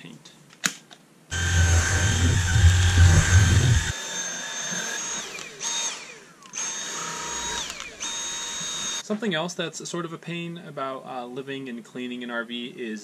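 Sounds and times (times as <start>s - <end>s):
heavy low rumble: 1.3s - 3.9s
vacuum motor whine: 1.3s - 9.0s.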